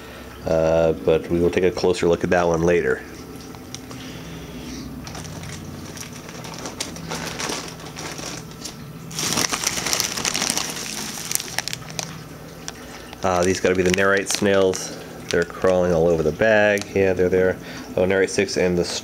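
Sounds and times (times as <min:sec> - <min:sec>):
steady low hum: 0:00.0 - 0:19.0
plastic bags crinkling: 0:04.9 - 0:17.3.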